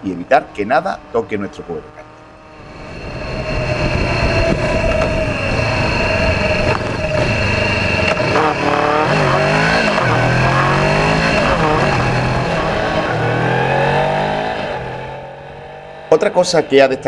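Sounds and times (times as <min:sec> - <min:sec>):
motorcycle engine revving: 0:00.0 - 0:17.0
road noise: 0:00.0 - 0:17.0
wind noise: 0:02.4 - 0:14.8.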